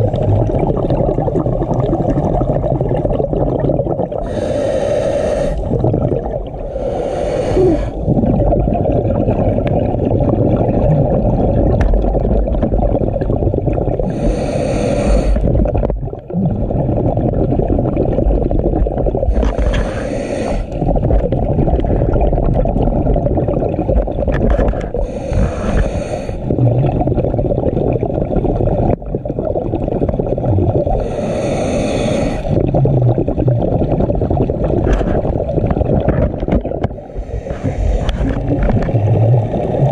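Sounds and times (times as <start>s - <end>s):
exhaled bubbles: 0.0s - 39.9s
low water rumble: 0.0s - 39.9s
regulator breathing: 4.2s - 5.7s, 6.7s - 8.0s, 14.1s - 15.4s, 19.3s - 20.8s, 25.0s - 26.5s, 31.0s - 32.6s, 37.0s - 38.4s.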